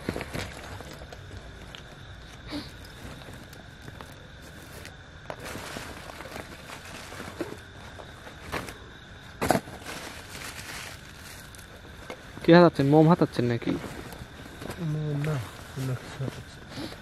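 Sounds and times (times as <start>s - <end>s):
plastic bag rustling: 2.9s - 8.8s, 9.4s - 12.4s.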